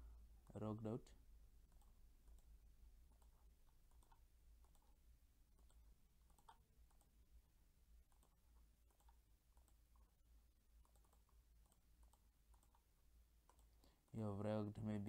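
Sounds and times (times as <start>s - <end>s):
low steady hum: 0.0s - 15.0s
computer mouse clicks: 1.7s - 7.2s, 8.0s - 10.2s, 10.8s - 14.1s.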